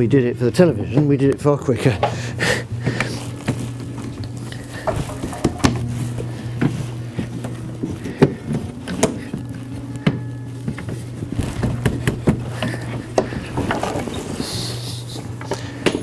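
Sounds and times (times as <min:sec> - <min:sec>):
steady low hum: 0:00.0 - 0:16.0
wood rubbing and scraping: 0:02.1 - 0:16.0.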